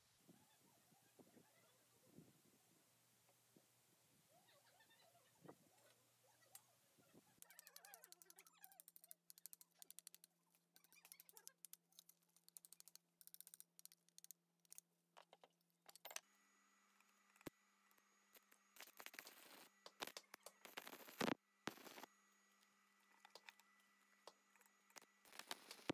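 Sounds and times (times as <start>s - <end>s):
metal tools clicking and tapping: 7.4s - 16.2s.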